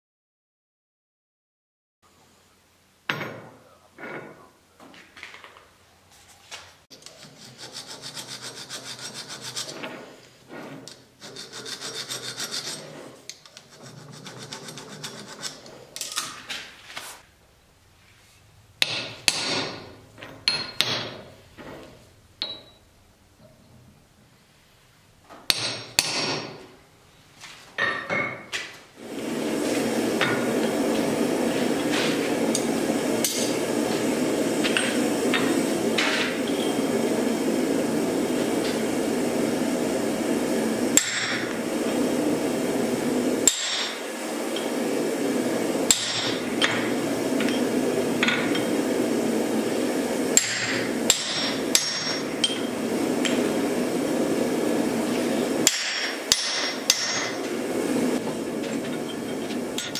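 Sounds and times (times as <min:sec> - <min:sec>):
hammer striking chisel on steel: 0:18.8 - 0:21.3, 0:25.5 - 0:26.5, 0:45.9 - 0:46.8, 0:50.4 - 0:52.7, 0:55.6 - 0:57.4.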